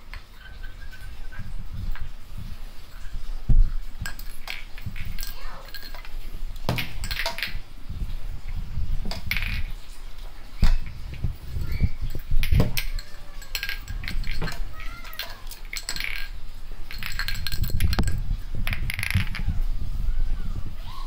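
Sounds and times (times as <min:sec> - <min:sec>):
kitten knocking objects on tiles: 0:06.7 - 0:07.6, 0:09.0 - 0:09.8, 0:12.3 - 0:19.5.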